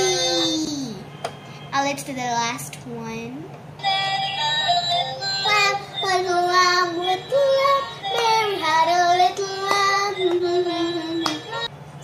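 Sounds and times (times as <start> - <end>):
toy playing sung children's song: 0.0 - 0.7, 3.8 - 11.7.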